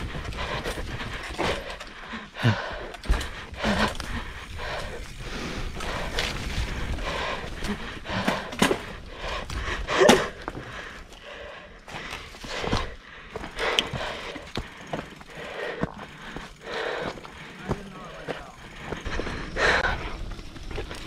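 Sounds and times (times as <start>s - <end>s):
bike clattering over rocks: 7.5s - 10.8s.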